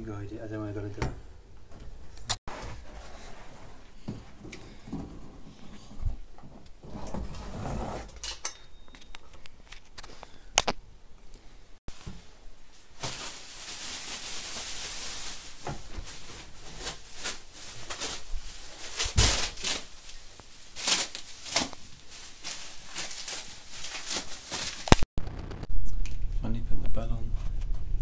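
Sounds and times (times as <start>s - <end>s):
plastic packaging crinkling: 12.8s - 25.6s.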